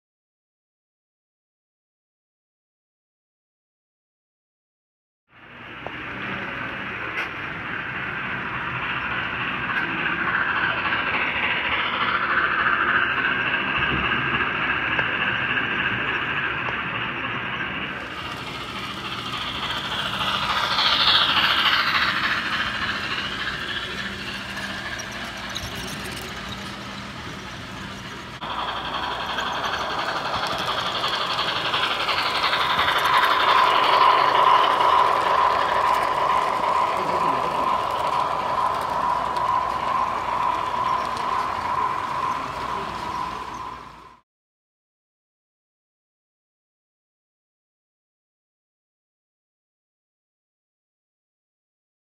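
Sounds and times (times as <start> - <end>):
model train wheels on rails: 5.4 - 44.2
model train whine: 5.4 - 44.2.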